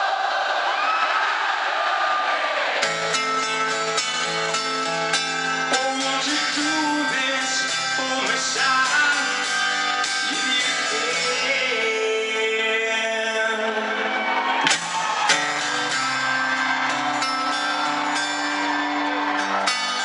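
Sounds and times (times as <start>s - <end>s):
crowd singing along: 0.0s - 20.0s
strummed guitar chords: 2.8s - 20.0s
man singing: 5.3s - 14.1s.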